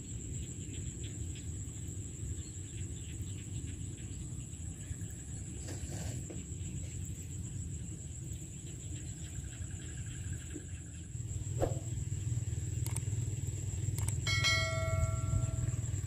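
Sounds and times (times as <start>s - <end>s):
low outdoor rumble: 6.3s - 16.0s
thin high whine: 14.0s - 16.0s
bright ringing chime: 14.3s - 16.0s.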